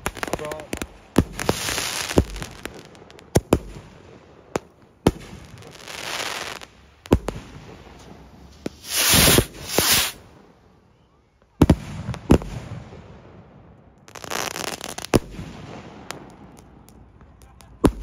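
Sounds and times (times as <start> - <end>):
rockets whooshing: 5.8 - 10.3
rocket bangs: 7.1 - 10.2.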